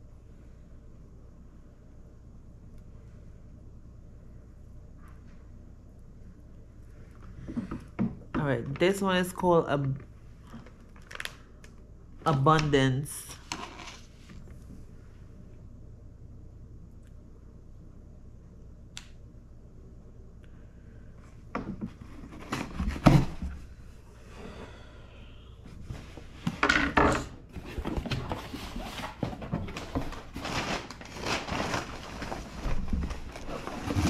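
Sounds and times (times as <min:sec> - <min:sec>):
cardboard and paper crackling: 0:08.6 - 0:11.5, 0:27.5 - 0:34.0.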